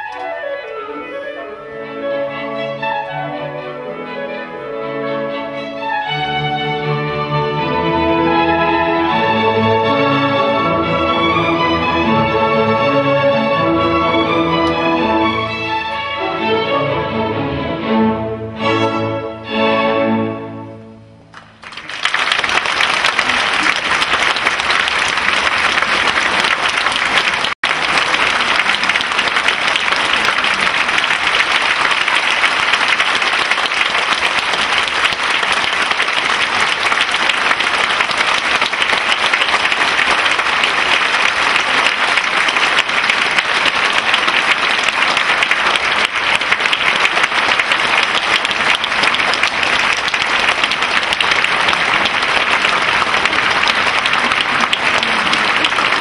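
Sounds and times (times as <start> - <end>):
audience applauding: 0.0 - 0.5, 21.3 - 56.0.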